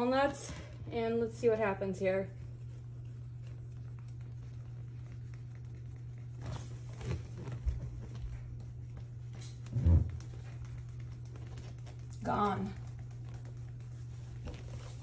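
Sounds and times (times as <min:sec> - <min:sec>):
steady low hum: 0:00.0 - 0:15.0
walnut rubbing on wooden floor: 0:09.4 - 0:10.6.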